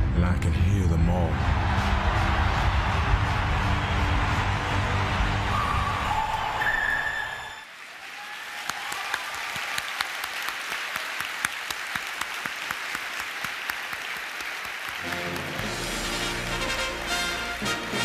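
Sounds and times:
audience applauding: 1.4s - 18.0s
music track: 15.0s - 18.0s.

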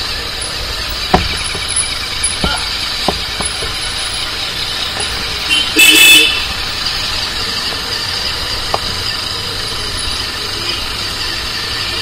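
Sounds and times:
motorcycle engine running: 0.0s - 12.0s
street traffic: 0.0s - 12.0s
short sharp knocks: 1.1s - 3.8s.

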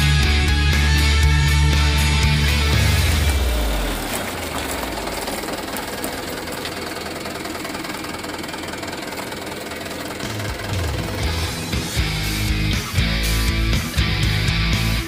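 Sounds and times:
music: 0.0s - 4.0s, 10.1s - 15.0s
truck engine running: 0.0s - 15.0s.

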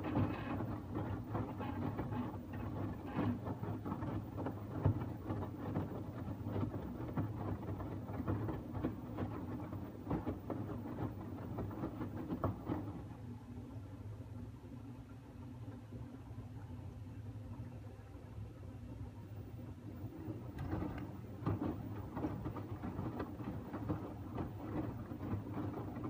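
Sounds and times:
laundry splashing and knocking: 0.0s - 13.1s, 20.0s - 26.0s
washing machine motor hum: 0.0s - 26.0s.

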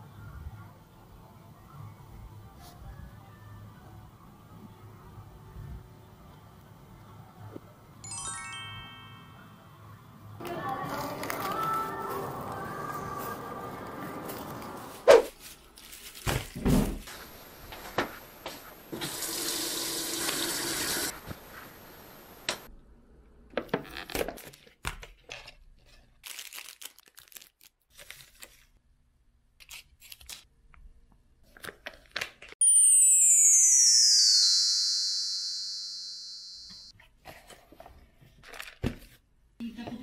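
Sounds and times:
plastic packets crinkling: 10.9s - 12.6s, 14.3s - 16.6s, 26.2s - 28.8s
electronic sound effect sliding down: 32.6s - 36.9s.

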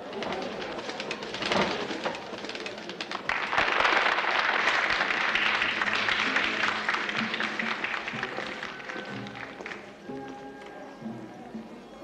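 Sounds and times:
crowd applauding: 3.1s - 9.9s
music: 5.0s - 12.0s.

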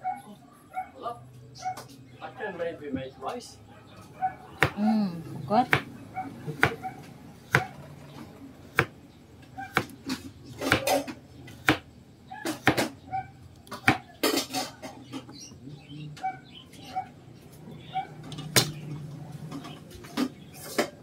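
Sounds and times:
knife chopping on cutting board: 4.6s - 4.8s, 5.7s - 5.9s, 6.5s - 6.9s, 7.5s - 7.8s, 9.6s - 11.8s, 12.4s - 12.9s.

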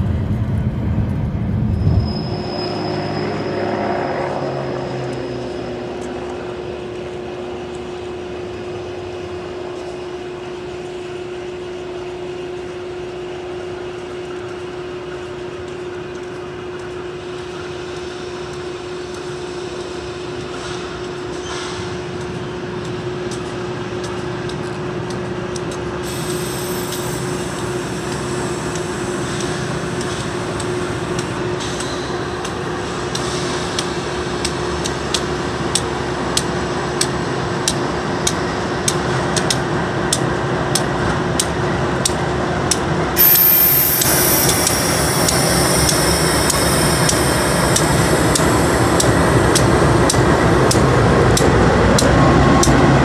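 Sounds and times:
diesel locomotives passing: 0.0s - 53.0s
steady tone: 43.2s - 51.2s.

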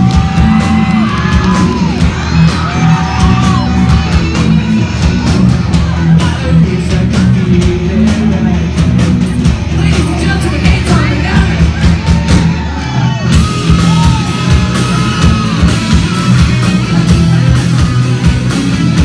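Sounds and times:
rock band playing live: 0.0s - 19.0s
person singing: 5.7s - 9.0s.

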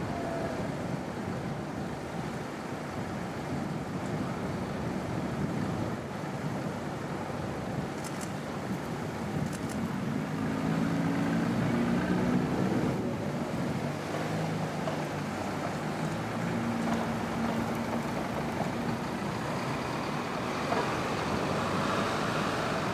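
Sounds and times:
cars driving past: 10.1s - 22.9s.

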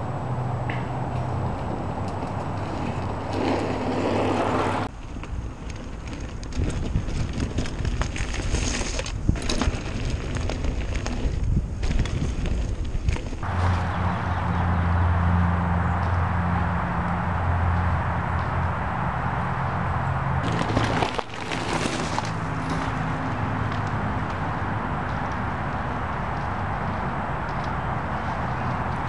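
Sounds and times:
steady low hum: 0.0s - 4.9s, 13.4s - 20.4s
bike tyres rolling on dirt: 0.0s - 29.0s
bike rattling and clicking: 0.6s - 14.6s, 20.0s - 29.0s.

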